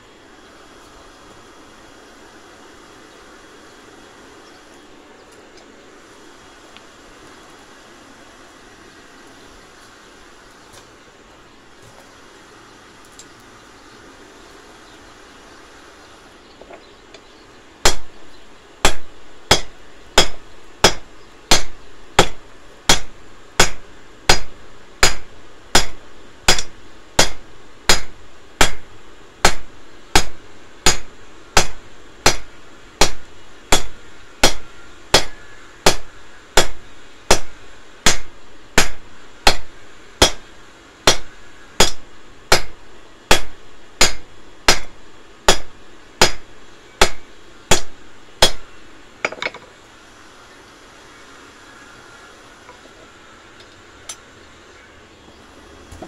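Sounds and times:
hammer striking steel on anvil: 18.8s - 28.8s, 29.4s - 40.4s, 41.0s - 44.9s, 45.5s - 48.6s, 49.2s - 49.6s.

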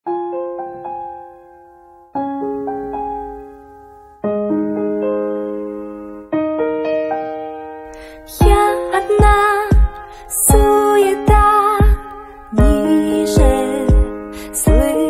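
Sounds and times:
soft piano chords: 0.1s - 15.0s.

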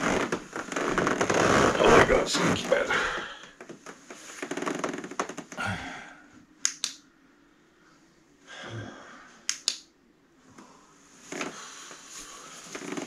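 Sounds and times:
crackling clicks: 6.6s - 7.0s, 9.5s - 9.9s
sharp clicks: 6.6s - 7.0s, 9.5s - 9.9s.

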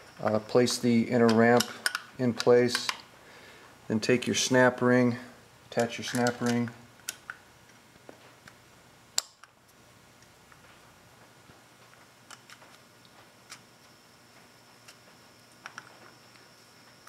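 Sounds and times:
small metal clicks: 1.2s - 3.1s, 5.8s - 7.8s.

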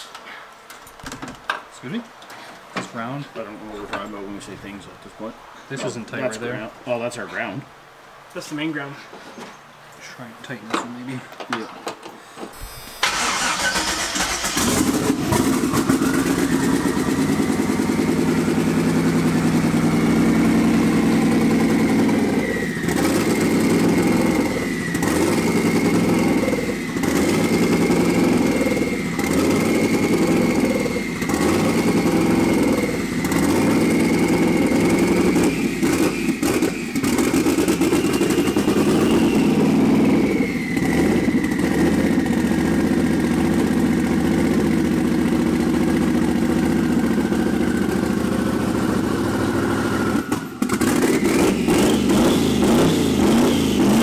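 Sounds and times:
engine running loud and uneven: 14.2s - 54.0s.

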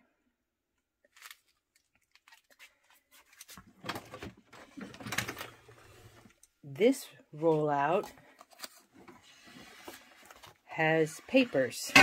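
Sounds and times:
plastic bins clicking and clattering: 3.7s - 6.4s.

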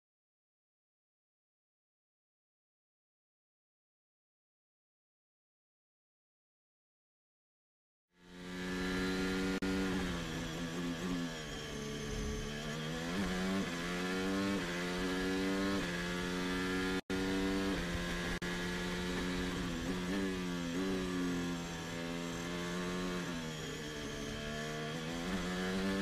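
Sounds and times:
race car engine accelerating: 8.2s - 26.0s.

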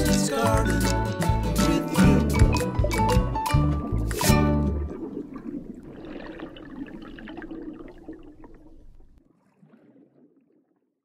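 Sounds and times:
bubbling trickling water: 2.2s - 11.0s.

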